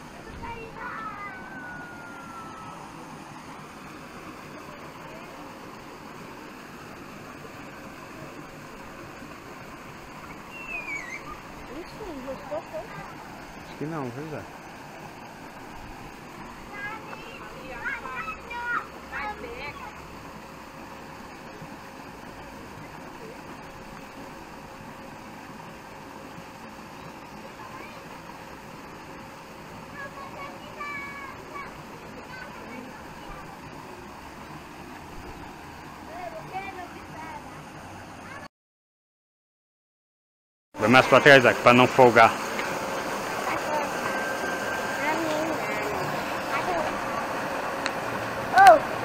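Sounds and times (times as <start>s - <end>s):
high whine sliding down: 0.0s - 22.9s, 40.8s - 49.0s
faint steady hum: 0.0s - 38.4s, 40.8s - 49.0s
steady hiss: 0.0s - 38.4s, 40.8s - 49.0s
outdoor background noise: 0.0s - 38.5s, 40.8s - 49.0s.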